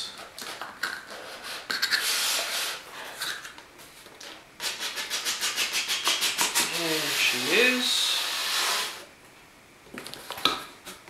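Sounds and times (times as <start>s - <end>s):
cardboard scraping on cardboard: 8.1s - 9.1s.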